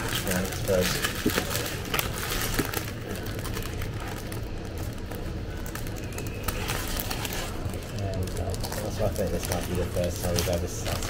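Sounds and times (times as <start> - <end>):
cafe interior hum: 0.0 - 11.0
paper bag crinkling: 0.0 - 11.0.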